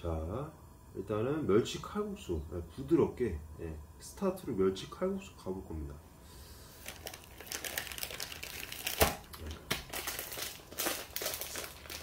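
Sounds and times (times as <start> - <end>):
plastic packet crinkling: 6.8 - 12.0.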